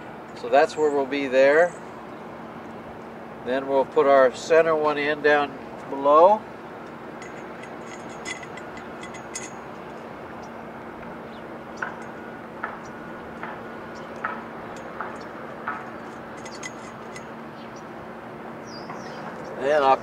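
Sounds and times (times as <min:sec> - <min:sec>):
metal bolt clicks and clinks: 0:07.2 - 0:09.7, 0:16.0 - 0:17.4.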